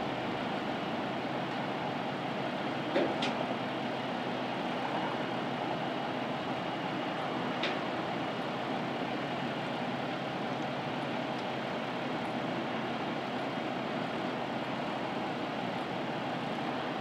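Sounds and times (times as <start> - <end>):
idling vehicle engines: 0.0 - 17.0.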